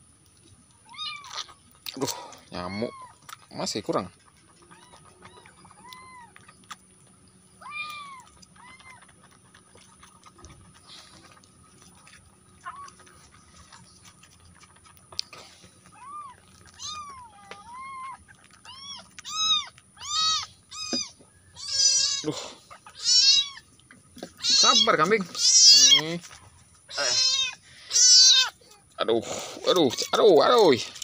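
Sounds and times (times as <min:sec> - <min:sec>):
kitten meowing: 0:00.9 - 0:01.5, 0:07.6 - 0:09.0, 0:16.0 - 0:22.2, 0:23.0 - 0:23.6, 0:24.3 - 0:26.0, 0:26.9 - 0:28.6.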